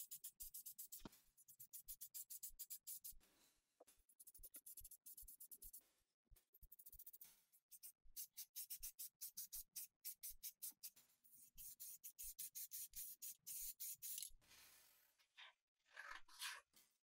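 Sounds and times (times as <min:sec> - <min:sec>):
spray paint can hissing: 0:06.7 - 0:11.0, 0:11.6 - 0:14.3.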